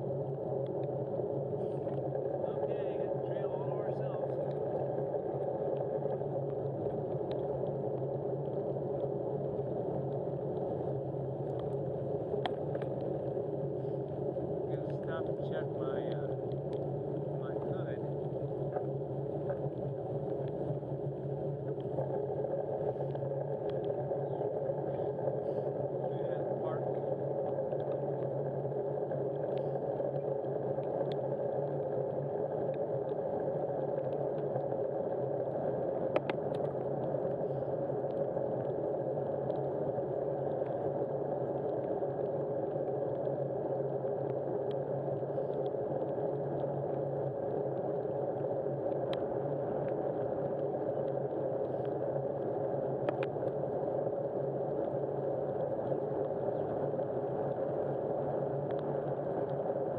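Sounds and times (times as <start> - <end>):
faint clicks: 11.4 - 14.2, 14.9 - 20.8, 27.4 - 43.4, 48.0 - 54.1, 58.5 - 59.6.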